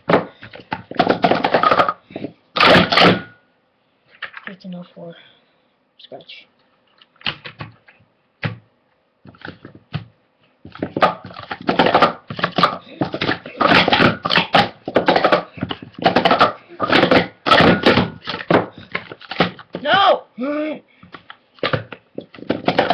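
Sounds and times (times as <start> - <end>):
plastic cups clacking: 0.0 - 3.3, 10.7 - 20.0, 21.1 - 22.9.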